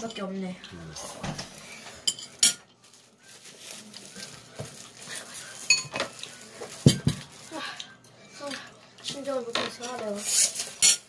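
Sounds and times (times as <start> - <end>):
dishes clinking on a table: 1.2 - 2.7, 5.7 - 6.2, 6.8 - 7.3.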